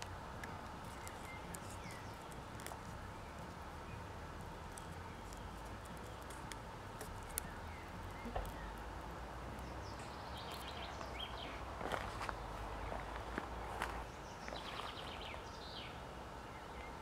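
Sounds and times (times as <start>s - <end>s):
soft clicks of tape being handled: 0.0s - 3.6s, 4.7s - 8.7s
bird chirping: 0.8s - 17.0s.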